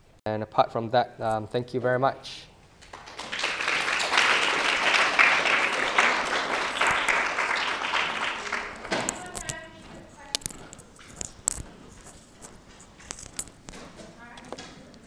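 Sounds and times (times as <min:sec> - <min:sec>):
audience applauding: 0:02.8 - 0:09.2.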